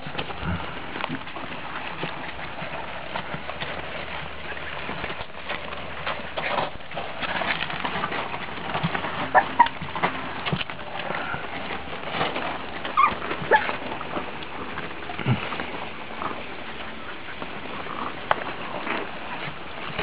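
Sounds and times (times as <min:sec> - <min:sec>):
puppies tapping and scuffling: 0:00.0 - 0:20.0
puppy squeaks: 0:09.3 - 0:09.8, 0:12.9 - 0:13.8.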